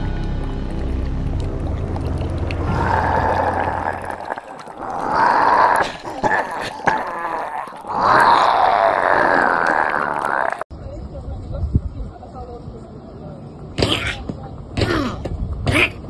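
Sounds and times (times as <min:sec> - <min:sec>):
background music: 0:00.0 - 0:04.1
cartoonish gurgling growls: 0:02.6 - 0:10.7.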